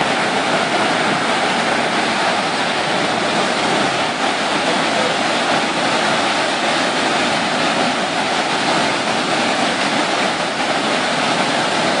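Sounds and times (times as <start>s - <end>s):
whitewater rushing: 0.0s - 12.0s.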